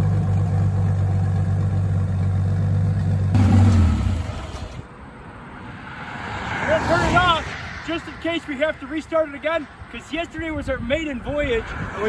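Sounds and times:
vehicle engine humming: 0.0s - 5.0s.

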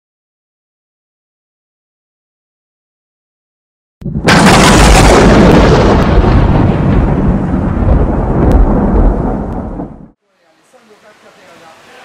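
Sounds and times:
loud rumbling crash: 4.0s - 10.2s.

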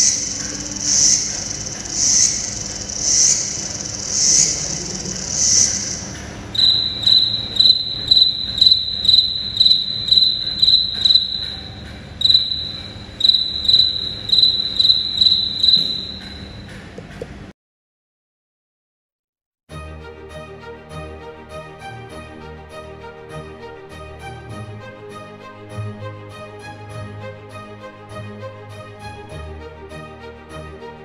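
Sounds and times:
cricket chirping: 0.0s - 16.7s
cricket pulsing call: 0.0s - 16.7s.

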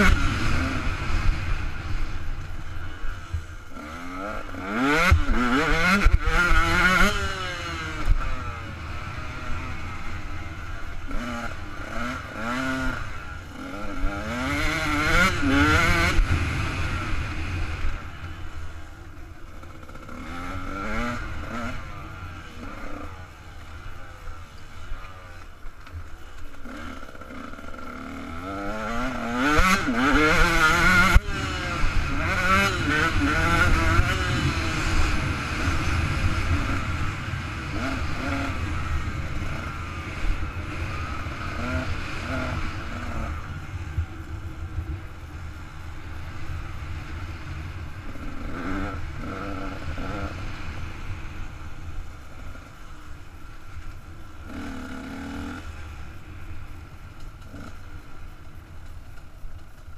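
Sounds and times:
two-stroke engine revving: 0.0s - 2.2s, 3.3s - 18.3s, 19.5s - 23.3s, 26.6s - 43.5s, 54.4s - 55.8s
wind rumble on camera: 29.0s - 59.9s.

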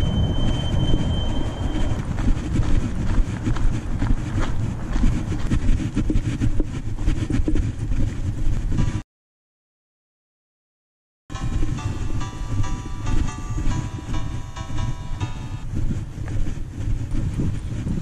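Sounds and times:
wind rumbling on microphone: 0.0s - 9.0s, 11.3s - 18.0s
footsteps on gravel: 1.6s - 7.3s.

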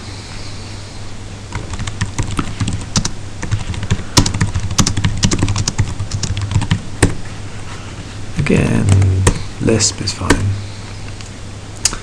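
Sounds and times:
computer keyboard typing: 1.5s - 7.2s.

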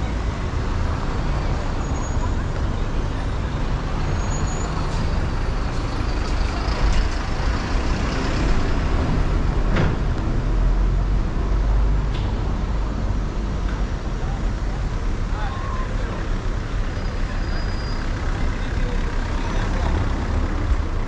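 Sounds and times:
heavy vehicle engine passing: 0.0s - 15.3s
traffic rumble: 0.0s - 21.0s.

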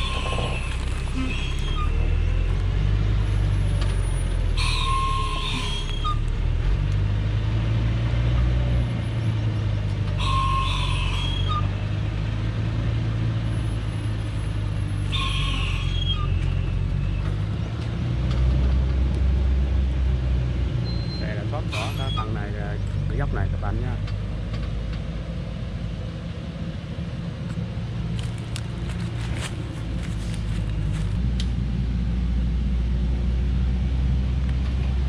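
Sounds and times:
short high-pitched squeals: 0.0s - 2.4s, 3.4s - 6.3s, 10.2s - 11.7s, 13.8s - 17.2s, 20.8s - 22.4s
diesel truck engine running: 0.0s - 35.0s.

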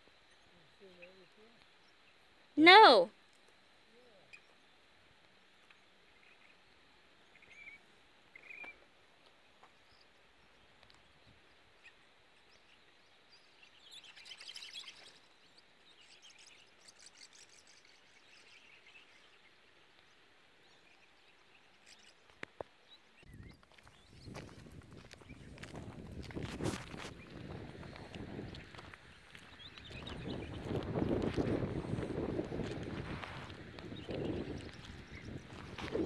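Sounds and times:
bird chirps: 11.8s - 19.8s.

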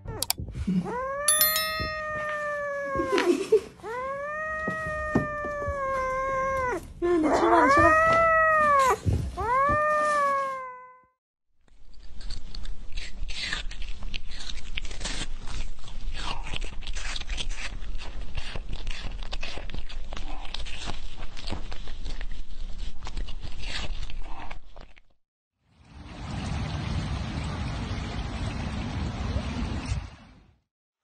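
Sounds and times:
kitten meowing: 1.1s - 3.2s.

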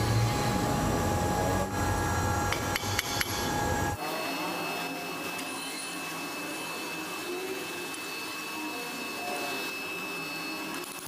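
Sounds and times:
metal lathe running: 0.0s - 4.0s
thin high whine: 0.0s - 11.0s.

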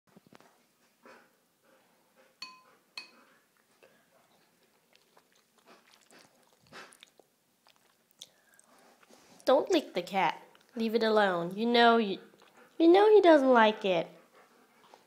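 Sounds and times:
dog licking wet lapping: 4.4s - 8.3s.

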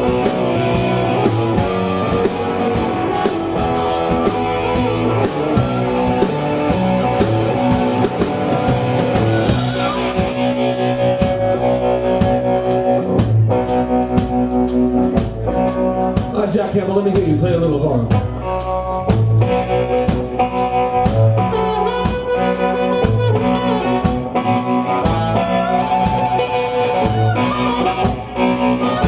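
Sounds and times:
bass guitar: 0.0s - 29.0s
drum kit: 0.0s - 29.0s
electric guitar: 0.0s - 29.0s
harmonica: 21.6s - 29.0s.

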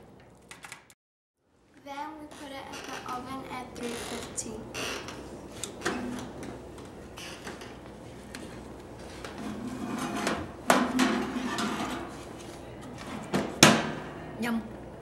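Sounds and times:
metal baking pan clanking: 9.4s - 12.1s.

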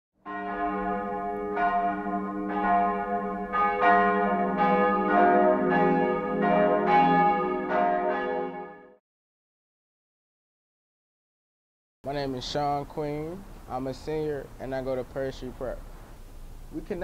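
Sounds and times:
church bells ringing: 0.2s - 9.0s.

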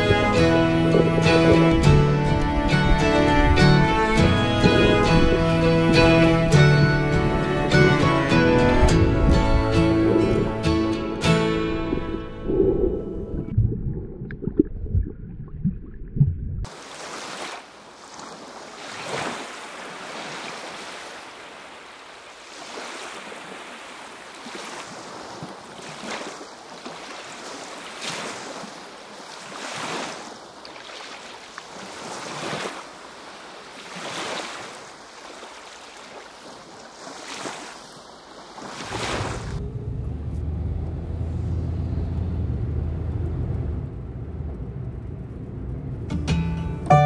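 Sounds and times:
small sea waves washing: 0.0s - 15.8s, 16.6s - 39.6s
muffled underwater sound: 11.6s - 16.7s.

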